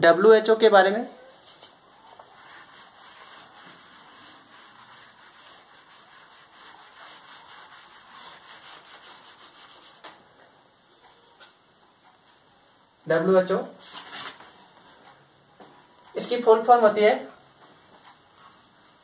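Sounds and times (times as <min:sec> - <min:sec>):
eraser wiping a whiteboard: 0:01.4 - 0:10.2, 0:17.5 - 0:19.0.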